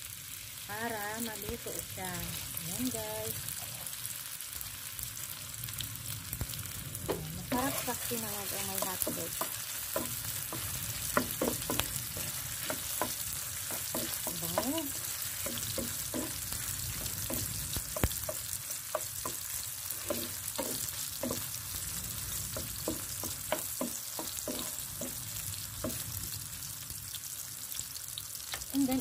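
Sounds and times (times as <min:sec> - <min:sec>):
food sizzling in oil: 0:00.0 - 0:29.0
spatula scraping and tapping pan: 0:07.0 - 0:26.2.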